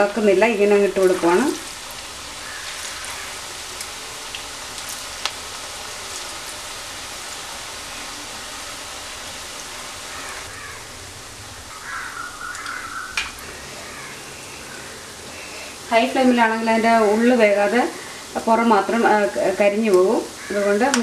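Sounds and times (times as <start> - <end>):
fritters sizzling in hot oil: 0.0 - 21.0.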